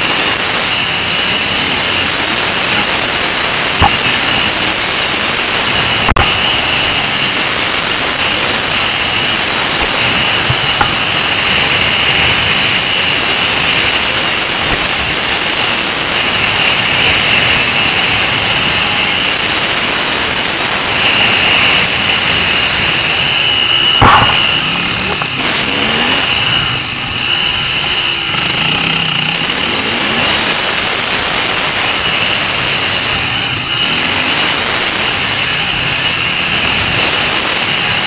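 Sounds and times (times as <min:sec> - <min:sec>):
dirt bike engine: 0:00.0 - 0:38.0
sharp knock: 0:24.0 - 0:25.3.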